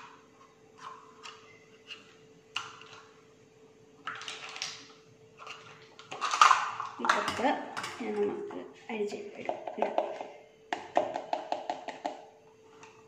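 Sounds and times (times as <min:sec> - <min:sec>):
faint steady hum: 0:00.0 - 0:13.0
kitchen containers clicking: 0:05.4 - 0:08.3.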